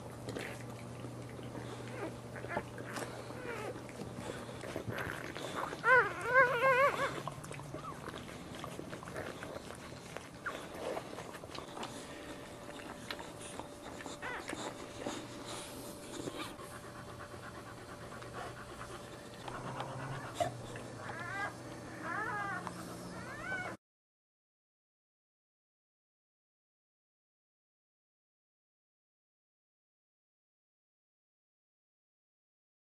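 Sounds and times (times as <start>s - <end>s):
puppies whimpering and squeaking: 0.4s - 23.8s.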